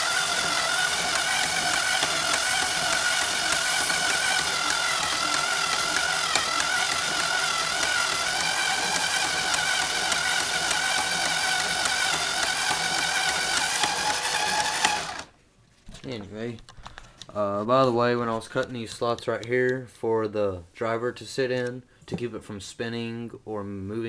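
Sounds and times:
electric screwdriver motor whine: 0.0 - 15.3.

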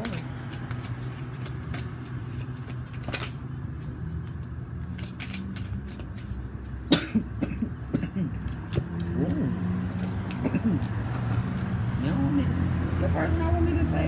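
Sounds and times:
person coughing: 6.9 - 8.4, 10.4 - 10.8.

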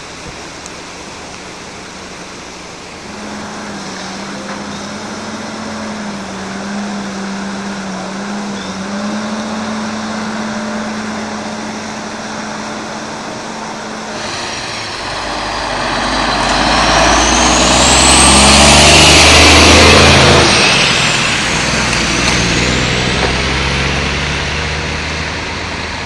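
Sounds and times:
tyre hiss on wet road: 0.0 - 6.2, 10.3 - 25.9
truck engine rumble: 0.0 - 26.0
thin rising whine: 3.0 - 26.0
steady hum: 10.2 - 23.0.

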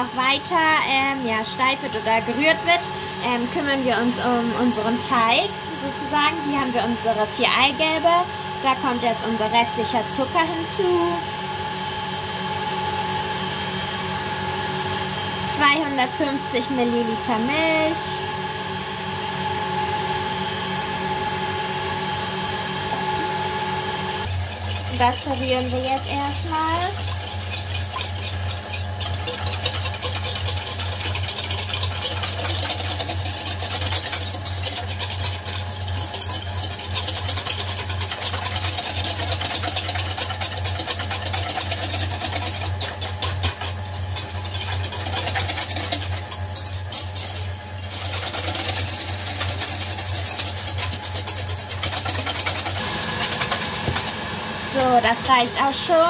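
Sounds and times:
electric mixer motor running: 0.0 - 56.0
wire whisk beating in metal bowl: 24.2 - 56.0.

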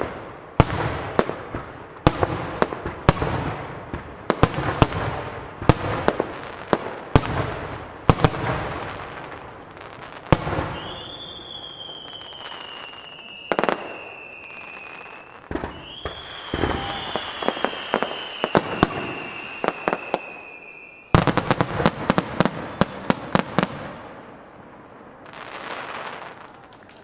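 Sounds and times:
fireworks cracking bursts: 0.0 - 27.0
long high firework whistle: 8.4 - 24.3.

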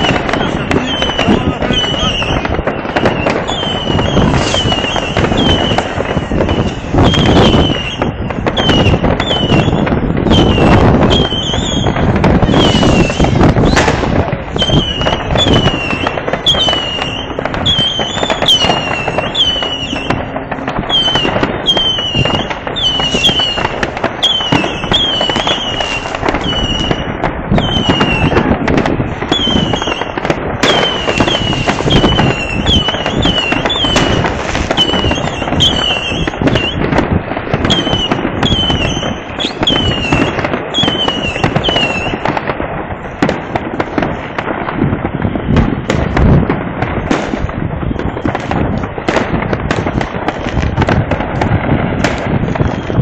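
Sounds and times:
fireworks bangs and crackles: 0.0 - 53.0
high falling whistles: 0.8 - 13.9, 14.6 - 20.2, 20.9 - 23.6.

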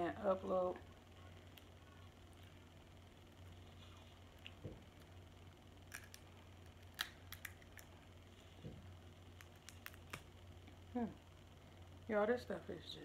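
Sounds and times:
faint low hum: 0.0 - 13.0
crab shells cracking: 5.8 - 8.0, 9.4 - 10.3.

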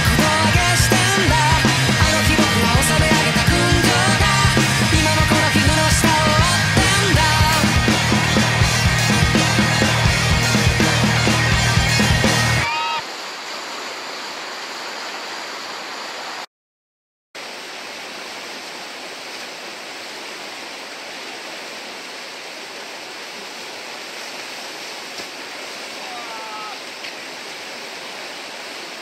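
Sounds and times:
background music: 0.0 - 12.8
whitewater rushing: 0.0 - 16.5, 17.4 - 29.0.

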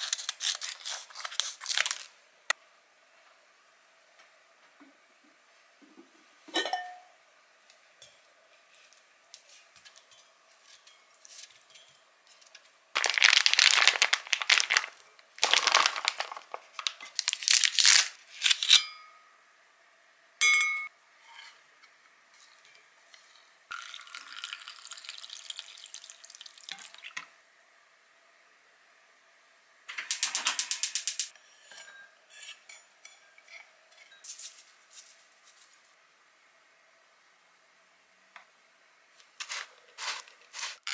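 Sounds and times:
handling ingredients and packet: 0.0 - 2.2, 13.0 - 18.6.

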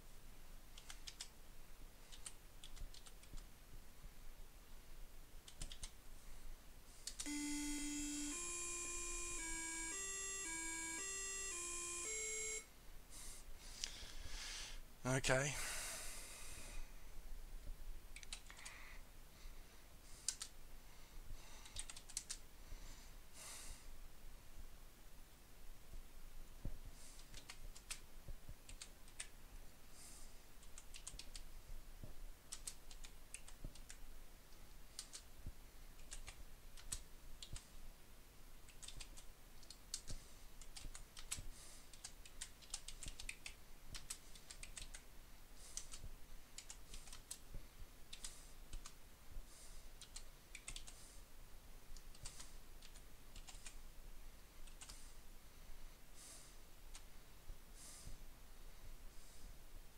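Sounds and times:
computer keyboard typing: 0.8 - 1.3, 2.1 - 3.4, 5.4 - 6.0, 7.0 - 12.6, 20.2 - 20.5, 21.6 - 22.4, 27.2 - 28.0, 28.7 - 29.3, 30.6 - 31.4, 32.5 - 34.0, 35.0 - 35.3, 36.0 - 37.7, 38.7 - 45.0, 45.7 - 47.4, 50.0 - 51.0, 52.1 - 53.8, 54.6 - 55.0.

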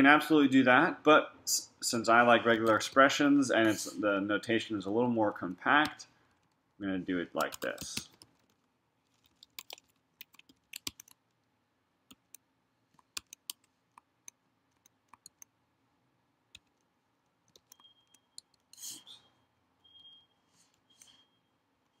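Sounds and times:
computer keyboard typing: 7.4 - 11.3, 13.0 - 15.5, 16.5 - 18.9.

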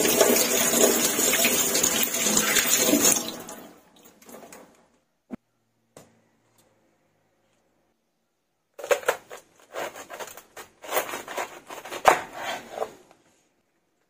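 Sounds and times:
knife crunching through cabbage: 9.6 - 12.7.

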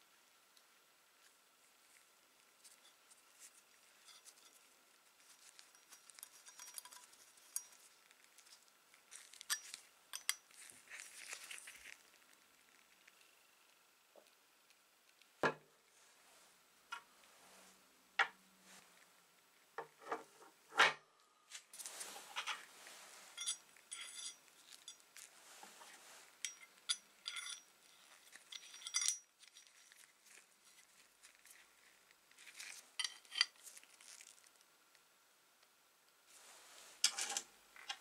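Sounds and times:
small ringing metal clinks: 23.4 - 25.0, 26.4 - 30.0.

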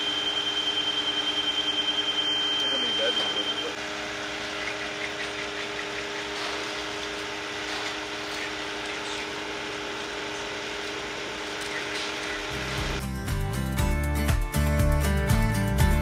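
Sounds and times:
concrete pump truck humming: 0.0 - 13.0
music: 12.7 - 16.0.

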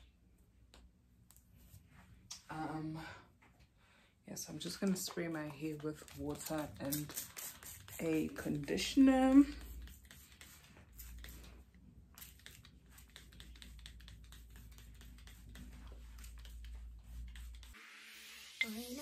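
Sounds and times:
spray bottle spritzing: 6.8 - 8.4.

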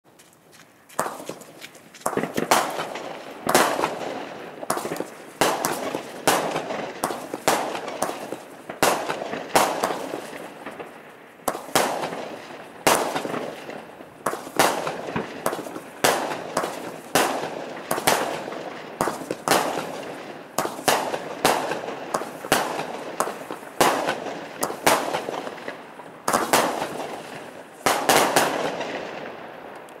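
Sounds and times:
fireworks bangs with echo: 1.0 - 29.8.

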